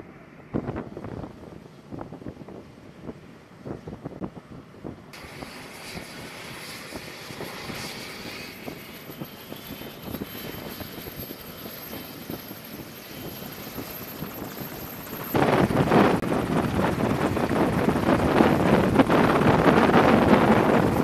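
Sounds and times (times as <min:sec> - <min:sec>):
high turbine engine whine: 0:00.0 - 0:21.0
helicopter rotor turning: 0:05.1 - 0:21.0.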